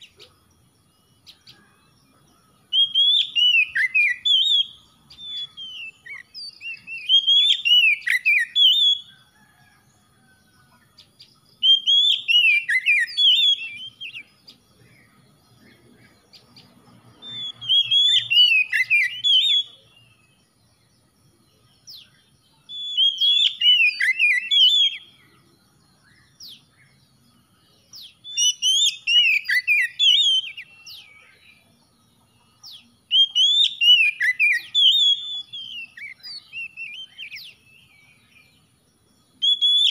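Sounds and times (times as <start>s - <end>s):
bird singing sliding notes: 11.7s - 31.8s.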